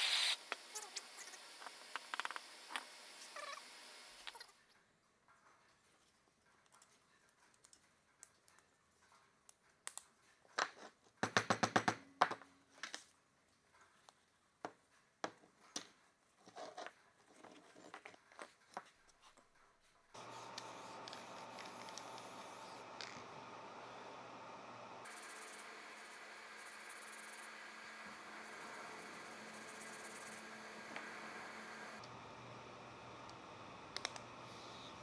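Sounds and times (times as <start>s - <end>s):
steady hum: 20.2s - 35.0s.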